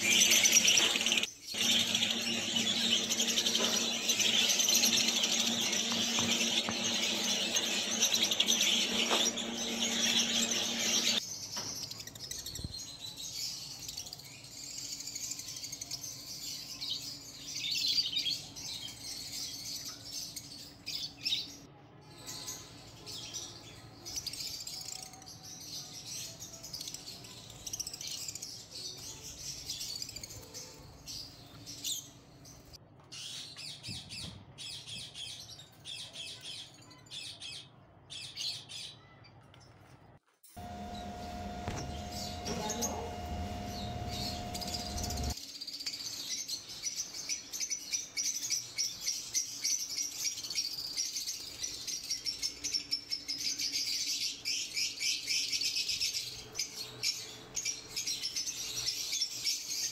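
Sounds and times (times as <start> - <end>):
lovebirds chirping: 0.0 - 13.1, 40.6 - 45.4
low hum: 40.6 - 45.4.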